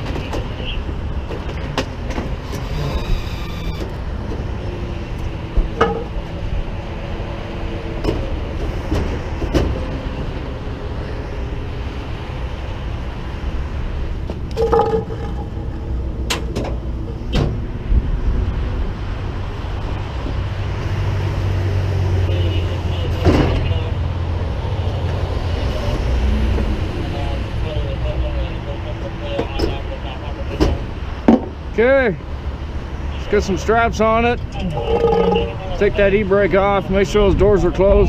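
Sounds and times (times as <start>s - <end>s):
truck engine running: 12.6s - 28.9s, 33.9s - 38.0s.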